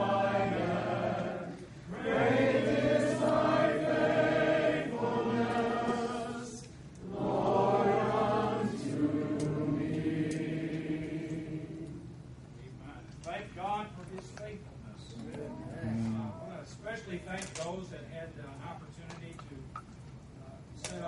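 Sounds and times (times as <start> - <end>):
group of voices singing: 0.0 - 12.2.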